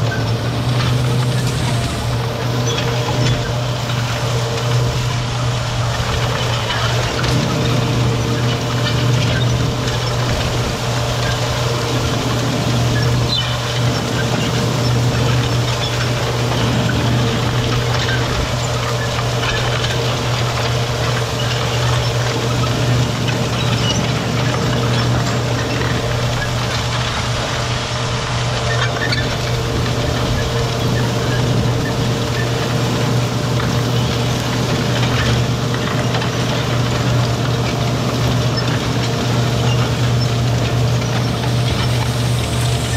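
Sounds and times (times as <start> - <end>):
noisy rush: 0.0 - 21.7
tractor engine hum: 0.0 - 42.9.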